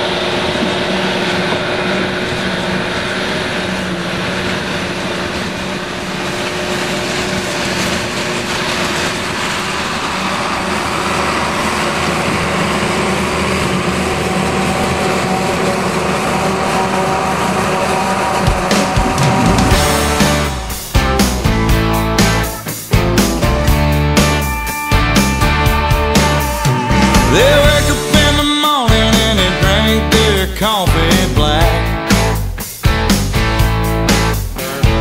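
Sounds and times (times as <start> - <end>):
forage harvester chopping corn: 0.0 - 24.5
tractor engine: 0.0 - 35.0.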